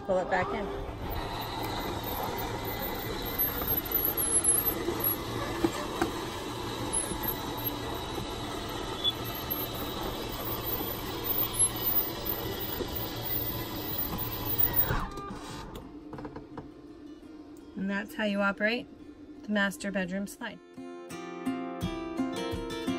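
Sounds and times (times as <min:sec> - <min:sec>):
slide-out motor humming: 0:00.0 - 0:17.0.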